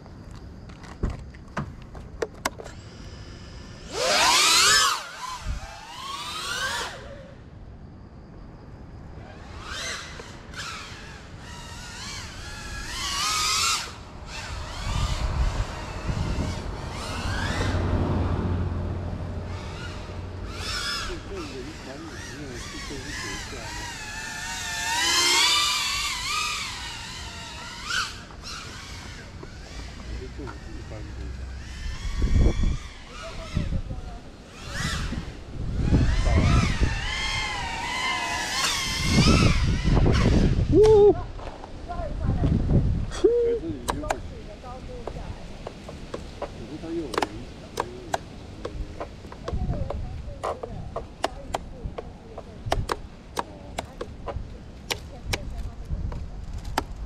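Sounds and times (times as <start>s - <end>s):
quadcopter motors whining: 2.2s - 7.8s, 8.9s - 57.0s.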